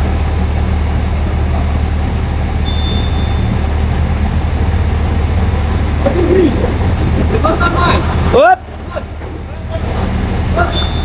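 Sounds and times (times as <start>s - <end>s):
heavy vehicle engine idling: 0.0s - 11.0s
faint high whine: 2.6s - 3.7s.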